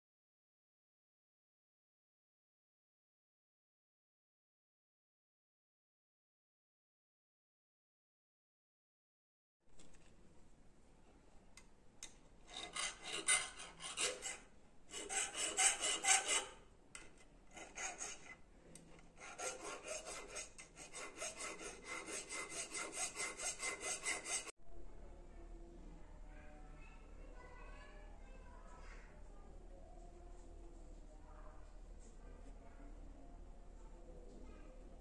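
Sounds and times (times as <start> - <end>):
needle file rasping on metal: 12.4 - 16.6, 17.5 - 18.4, 19.0 - 24.5.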